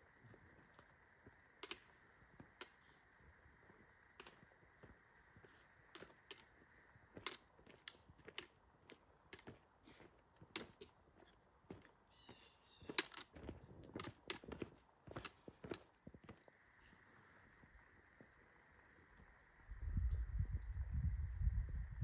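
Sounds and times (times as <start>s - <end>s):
footsteps clicking on rock: 3.7s - 16.6s
low steady hiss: 15.9s - 22.0s.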